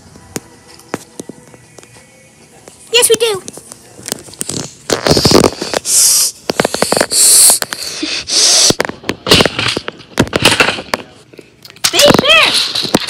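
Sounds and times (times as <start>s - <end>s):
plastic toys clicking and knocking: 4.4s - 7.8s, 8.7s - 13.0s.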